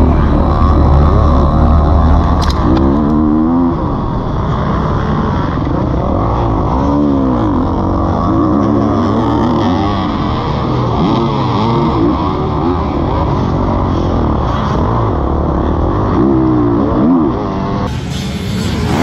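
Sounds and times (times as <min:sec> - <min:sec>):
motocross bike engine revving: 0:00.0 - 0:19.0.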